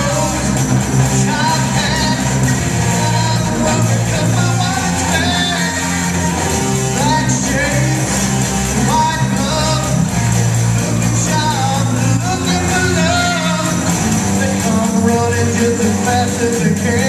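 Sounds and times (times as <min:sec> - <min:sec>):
bass notes: 0:00.0 - 0:17.0
drums: 0:00.0 - 0:17.0
electric guitars: 0:00.0 - 0:17.0
person singing: 0:00.0 - 0:17.0.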